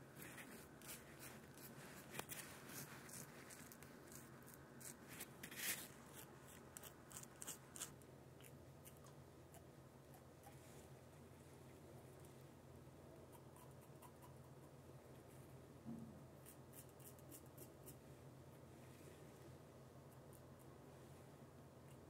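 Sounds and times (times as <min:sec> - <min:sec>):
razor scraping stubble: 0:00.4 - 0:09.1.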